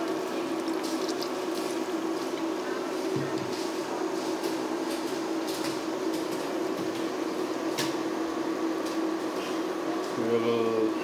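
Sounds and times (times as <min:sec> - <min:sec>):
bubbles popping: 0:00.0 - 0:02.6
water boiling and bubbling: 0:00.0 - 0:10.1
electric hum: 0:00.0 - 0:11.0.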